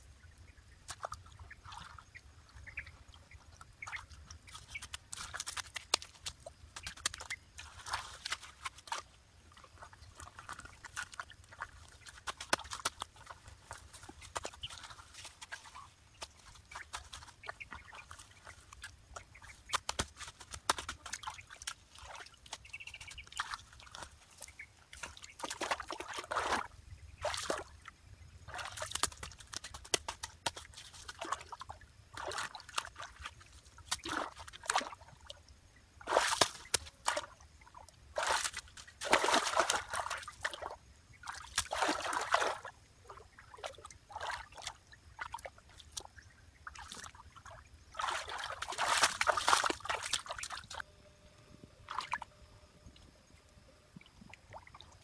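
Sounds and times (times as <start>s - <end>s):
hands splashing in water: 3.8s - 9.1s, 9.8s - 24.2s, 25.0s - 27.7s, 28.5s - 35.1s, 36.0s - 37.4s, 38.2s - 42.7s, 46.7s - 50.8s
hands packing wet mud: 3.8s - 27.7s, 28.5s - 35.1s, 36.0s - 37.4s, 38.1s - 42.7s, 47.9s - 50.8s.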